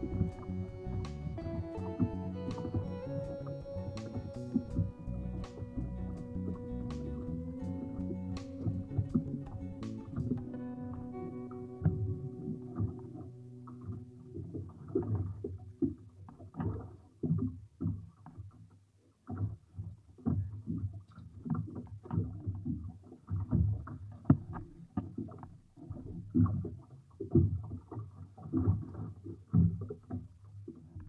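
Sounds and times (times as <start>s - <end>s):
wind buffeting microphone: 0.0s - 15.4s.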